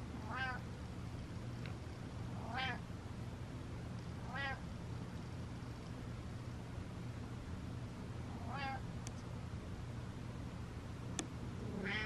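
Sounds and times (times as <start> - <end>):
cat meowing: 0.3 - 0.6, 2.4 - 2.8, 4.3 - 4.6, 8.4 - 8.8, 11.6 - 12.0.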